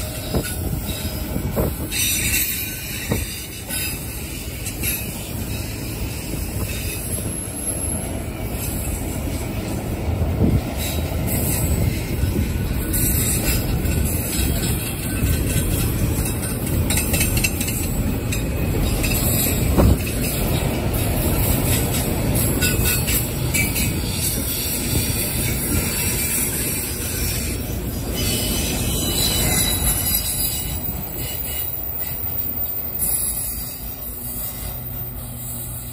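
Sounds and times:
train wheels rumbling on rails: 0.0s - 35.9s
high-pitched wheel squeal: 17.1s - 35.9s.

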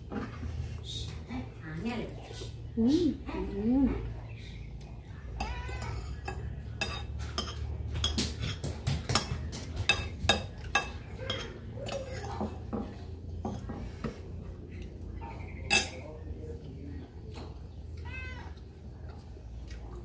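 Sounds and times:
spoon clinking on ceramic bowl: 5.4s - 8.6s.

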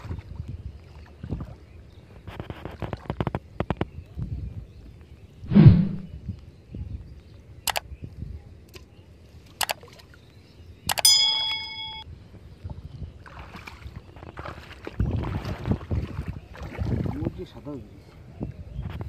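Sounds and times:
water sloshing and splashing: 0.0s - 3.4s, 13.2s - 17.7s
sharp clicks: 7.7s - 7.9s, 9.6s - 9.8s, 10.9s - 11.1s
bright bell ding: 11.0s - 12.1s.

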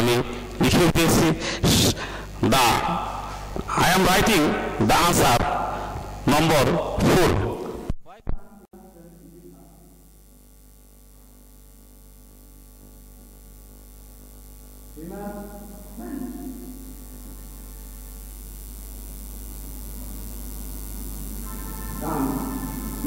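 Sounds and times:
electrical mains hum: 0.0s - 23.0s.

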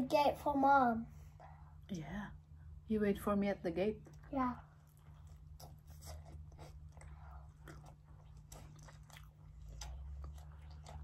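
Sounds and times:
chewing pizza: 4.0s - 11.0s.

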